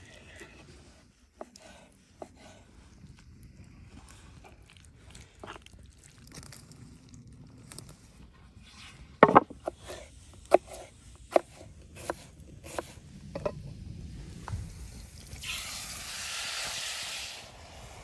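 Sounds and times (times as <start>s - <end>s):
knife chopping on wooden board: 9.2s - 12.9s
chicken sizzling in a pot: 14.7s - 18.0s.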